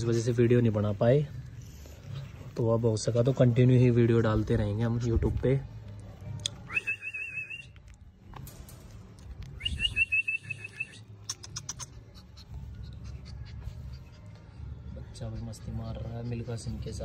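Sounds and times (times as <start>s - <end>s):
puppy whining: 11.3s - 16.8s.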